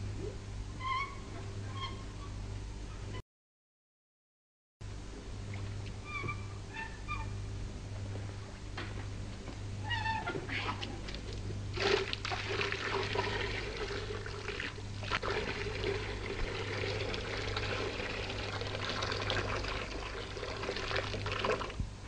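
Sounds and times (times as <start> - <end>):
water pouring in a stream: 11.7 - 21.8.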